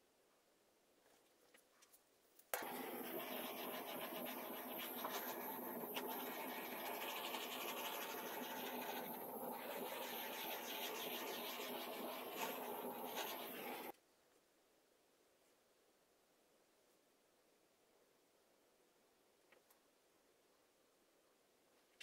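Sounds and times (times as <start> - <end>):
gas torch flame hissing: 2.6 - 13.9.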